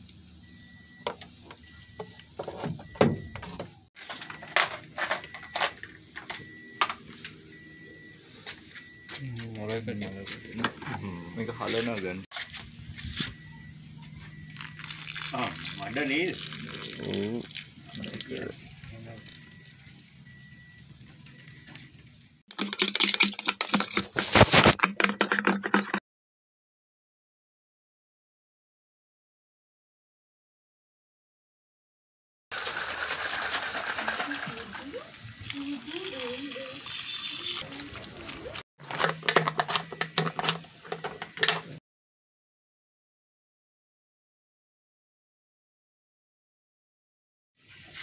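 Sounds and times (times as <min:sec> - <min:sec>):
brush scrubbing plastic tank: 0:22.5 - 0:26.0.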